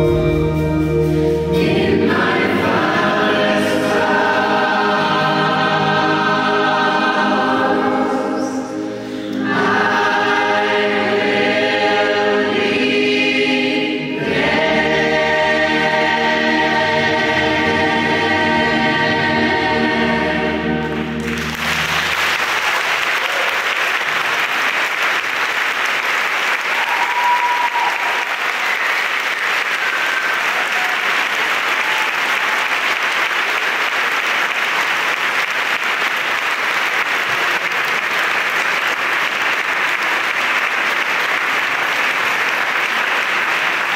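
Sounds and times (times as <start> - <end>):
choir singing held chord: 0.0 - 22.5
audience applause: 21.2 - 43.9.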